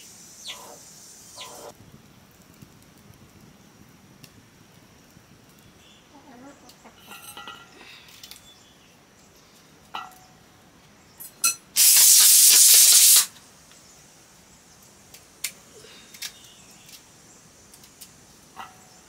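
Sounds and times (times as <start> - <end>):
pressure cooker steam hissing: 11.8 - 13.3.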